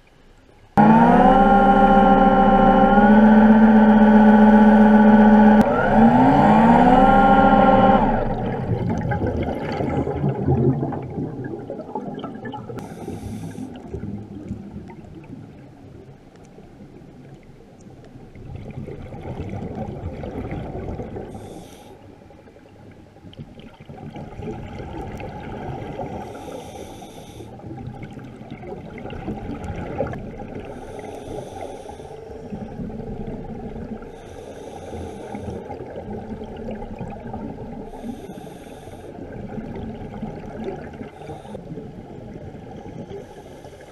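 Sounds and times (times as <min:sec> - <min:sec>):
scuba exhaled air bubbling: 0:00.8 - 0:16.1, 0:18.3 - 0:22.6, 0:23.3 - 0:43.9
regulator hiss: 0:12.8 - 0:13.7.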